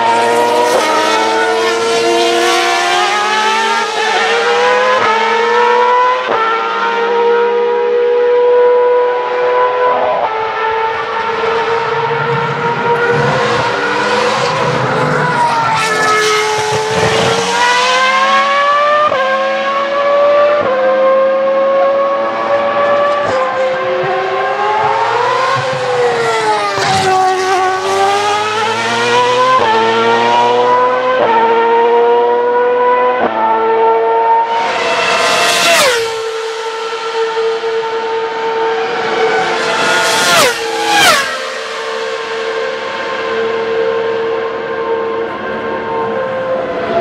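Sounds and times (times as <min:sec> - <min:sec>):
racing car engine accelerating: 0:00.0 - 0:47.0
racing car engine scream passing: 0:34.3 - 0:47.0.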